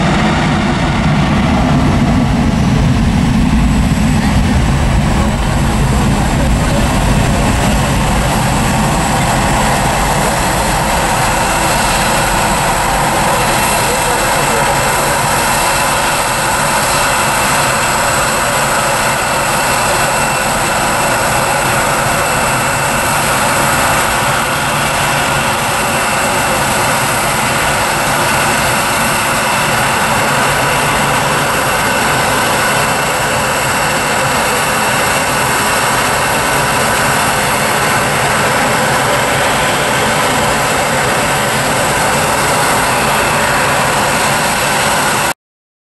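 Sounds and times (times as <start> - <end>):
jet engine roar: 0.0 - 45.4.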